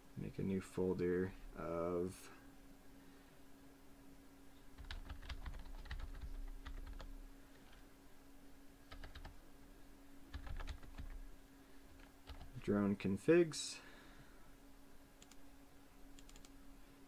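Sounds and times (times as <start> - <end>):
faint steady hum: 0.0 - 17.0
keyboard typing: 4.8 - 7.1, 8.9 - 9.4, 10.3 - 11.2, 12.0 - 12.6, 15.2 - 15.4, 16.1 - 16.6.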